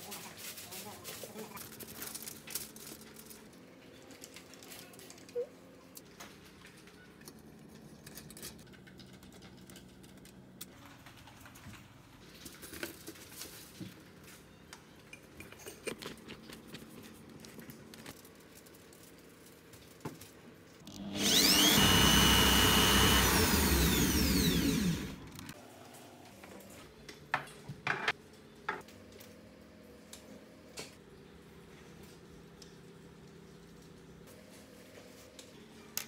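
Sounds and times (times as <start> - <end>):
electric drill spinning: 20.8 - 25.6.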